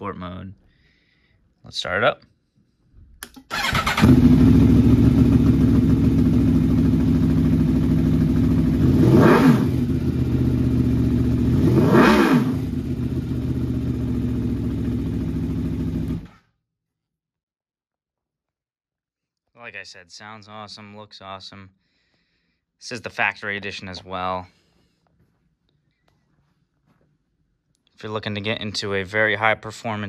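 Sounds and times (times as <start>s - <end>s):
motorcycle engine idling: 3.6s - 11.7s, 12.6s - 16.3s
engine revving blips: 8.8s - 10.0s, 11.4s - 12.9s.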